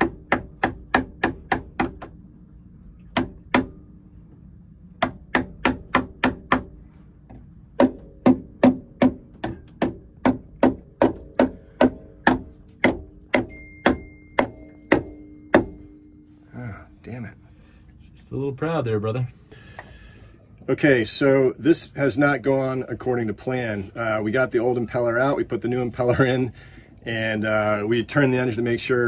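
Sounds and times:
mallet blows with metallic ring: 0:11.5 - 0:17.7.

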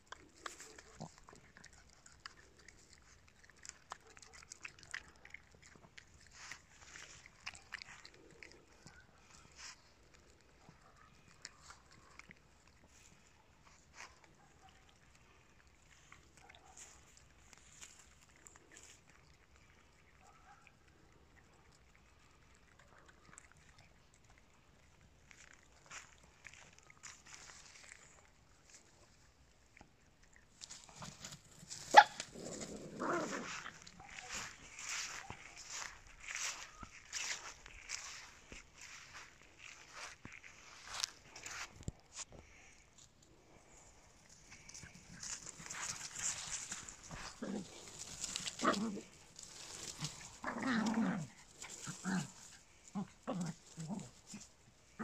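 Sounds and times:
dog chewing: 0:00.0 - 0:42.8
soft ticks and rustles: 0:00.0 - 0:55.0.

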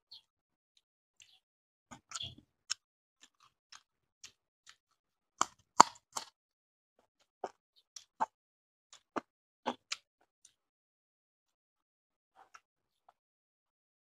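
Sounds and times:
wet chewing and lip-smacking: 0:02.0 - 0:04.8, 0:08.9 - 0:10.0.

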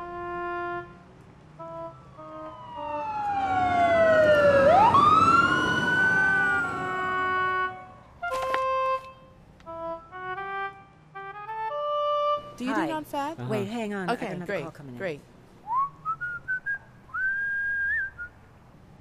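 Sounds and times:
light woodwind tune: 0:00.0 - 0:05.0, 0:06.1 - 0:12.9
emergency vehicle siren: 0:01.6 - 0:08.5.

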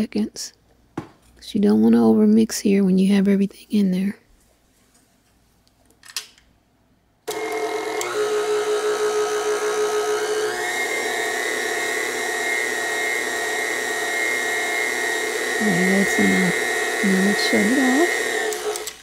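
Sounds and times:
stand mixer motor whining: 0:07.3 - 0:19.0.

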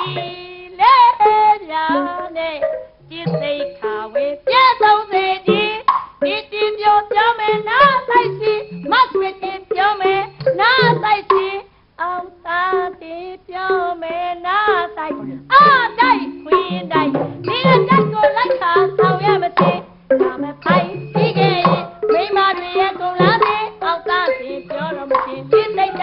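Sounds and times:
instrumental accompaniment: 0:00.0 - 0:26.0
person singing ornamented melody: 0:00.0 - 0:26.0
low drum notes: 0:01.9 - 0:03.9, 0:14.6 - 0:26.0.

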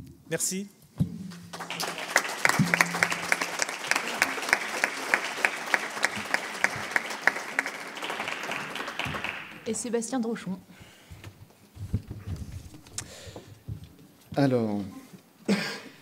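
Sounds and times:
audience applauding: 0:01.3 - 0:09.9.

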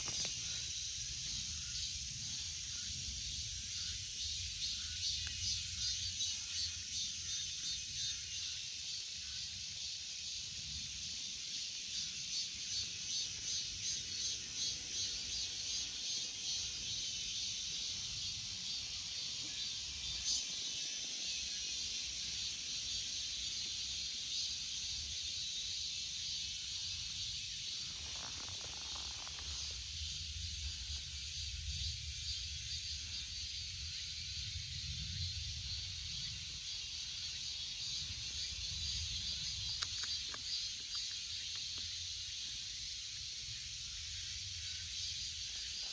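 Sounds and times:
cicadas buzzing: 0:00.0 - 0:45.9.

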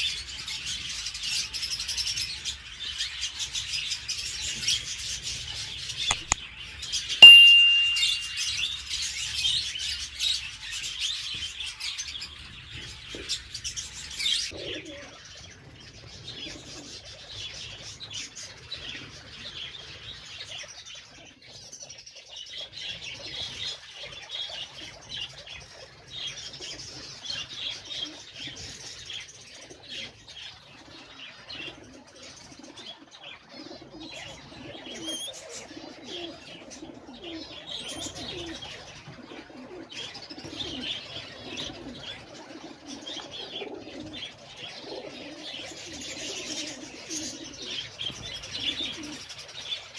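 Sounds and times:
birds chirping and twittering: 0:09.6 - 0:49.9.

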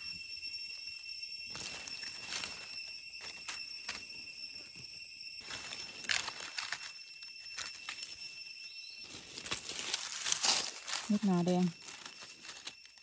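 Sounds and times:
steady high tone: 0:00.0 - 0:13.0
dry leaves crackling and rustling: 0:01.5 - 0:04.2, 0:05.4 - 0:08.3, 0:08.9 - 0:13.0.

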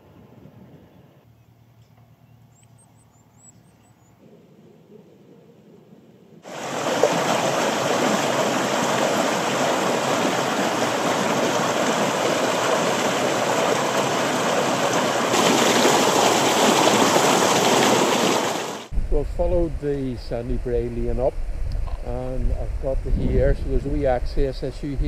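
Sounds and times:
stream rushing over rocks: 0:06.4 - 0:18.9.

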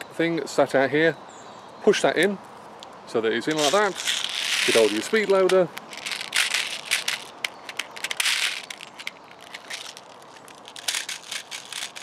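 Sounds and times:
plastic clicks and rattles: 0:03.6 - 0:12.0.

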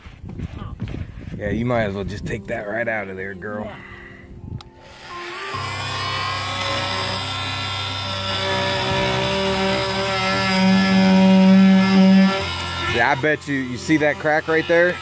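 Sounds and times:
oscillating multi-tool cutting wood: 0:04.8 - 0:15.0.

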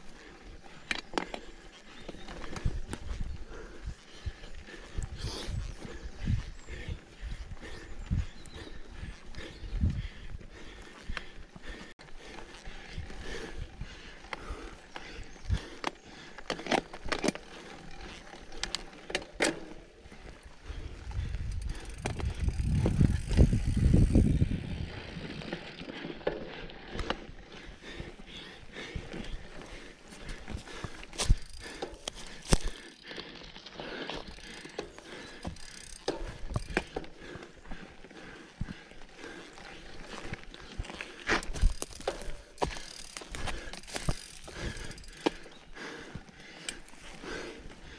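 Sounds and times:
bike tyres rolling: 0:00.0 - 0:47.9
bike rattling over bumps: 0:00.1 - 0:47.9
bike hub ratchet clicking: 0:21.2 - 0:27.3, 0:30.8 - 0:37.2, 0:41.3 - 0:45.5.

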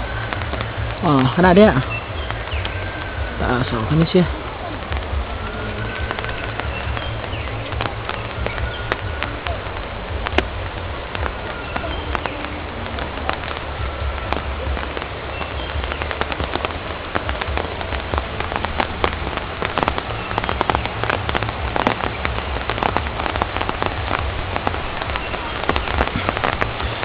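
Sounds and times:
low rumble: 0:00.0 - 0:27.0
rain drops ticking: 0:00.0 - 0:27.0.

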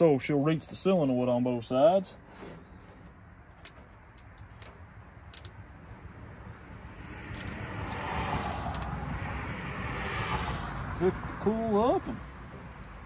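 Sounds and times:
light clicks of wire clips: 0:03.5 - 0:05.6.

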